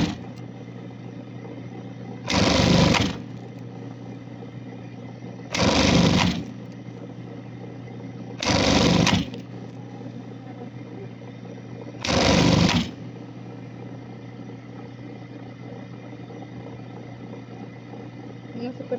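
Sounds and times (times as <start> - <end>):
sewing machine stitching: 0.0 - 0.4, 2.2 - 3.6, 5.5 - 6.6, 8.4 - 9.5, 12.0 - 13.1
steady low hum: 0.0 - 18.9.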